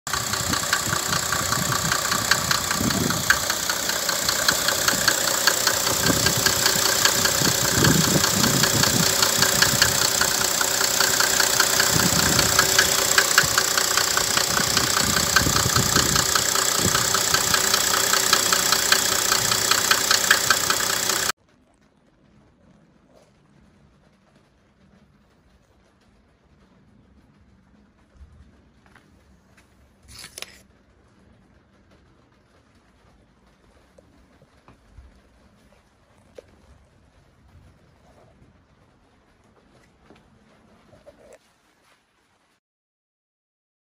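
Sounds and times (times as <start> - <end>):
diesel engine idling: 0.1 - 21.4.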